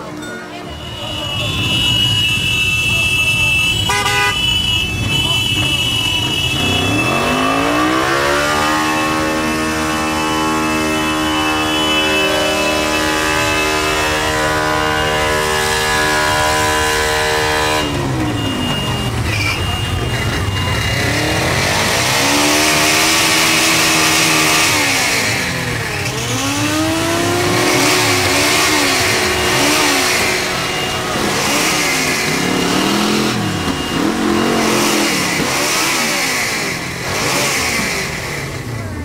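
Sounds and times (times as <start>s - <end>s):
motorcycle engine revving: 1.3s - 39.0s.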